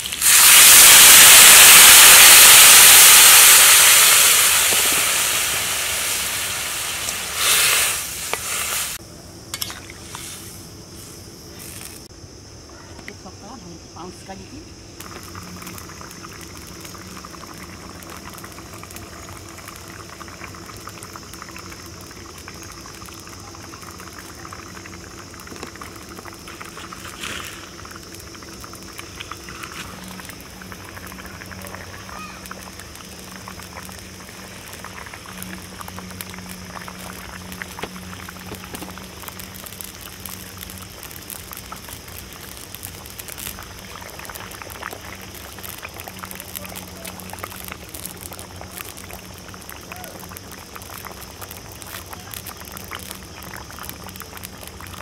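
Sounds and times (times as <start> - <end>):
curry bubbling in a metal pan: 15.0 - 55.0.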